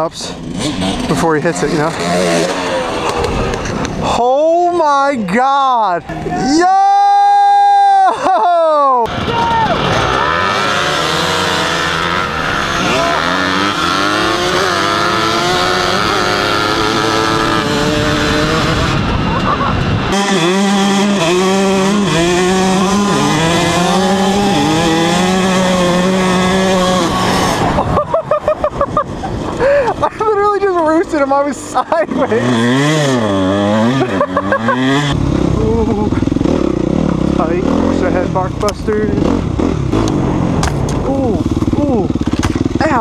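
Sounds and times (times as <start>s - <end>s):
dirt bike engines revving: 0.0s - 43.0s.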